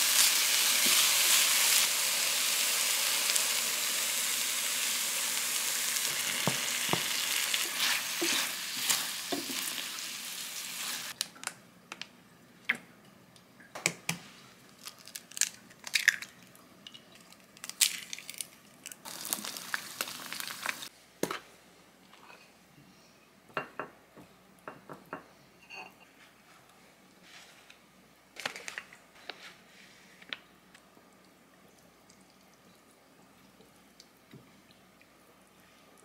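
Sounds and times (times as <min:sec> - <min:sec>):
egg sizzling in pan: 0:00.0 - 0:11.2, 0:19.0 - 0:20.9
food sizzling in frying pan: 0:00.0 - 0:11.2, 0:19.0 - 0:20.9
eggshell cracking: 0:14.8 - 0:16.4, 0:17.2 - 0:20.8.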